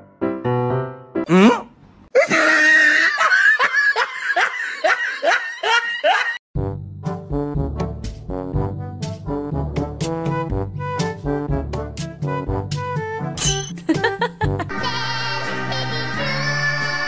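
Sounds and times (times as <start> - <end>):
person laughing: 2.2 - 6.4, 13.7 - 14.7
brass music: 6.6 - 13.4.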